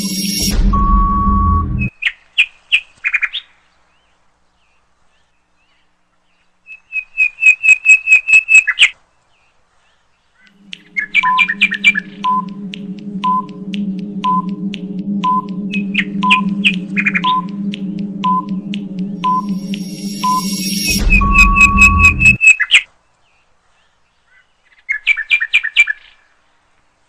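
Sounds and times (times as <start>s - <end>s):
countdown timer beeps: 0.0s - 1.9s, 10.5s - 22.4s
short high electronic chirps: 0.0s - 1.9s, 10.5s - 22.4s
steady electronic tone: 0.0s - 1.9s, 10.5s - 22.4s
steady low hum: 0.0s - 1.9s, 10.5s - 22.4s.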